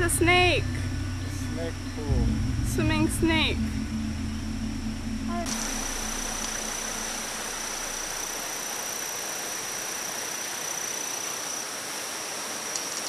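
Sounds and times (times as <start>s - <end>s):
high-pitched insect trill: 5.4s - 11.8s.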